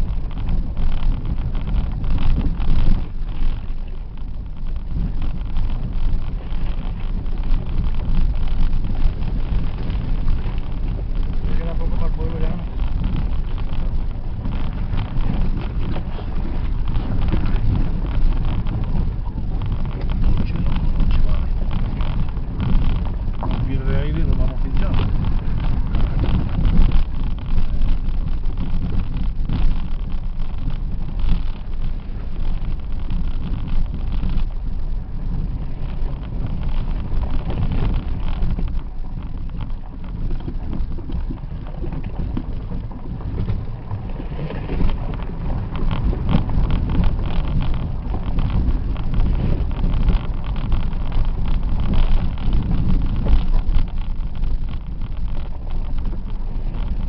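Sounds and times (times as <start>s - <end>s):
engine and road rumble: 0.0s - 57.0s
knocks and rattles over rocks: 0.0s - 57.0s.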